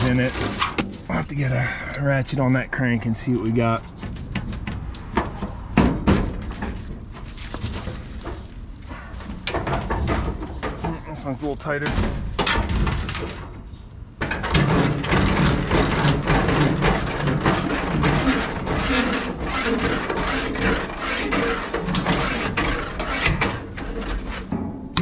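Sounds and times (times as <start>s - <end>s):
sheet-metal hood knocking and scraping: 0.0s - 1.3s, 3.4s - 25.0s
dry leaves and twigs crackling: 7.0s - 9.5s.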